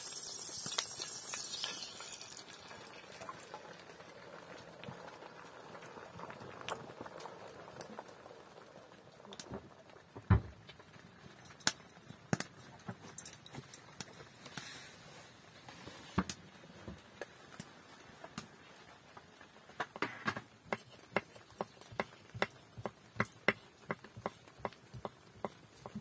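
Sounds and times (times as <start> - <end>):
thump: 10.3 - 10.5.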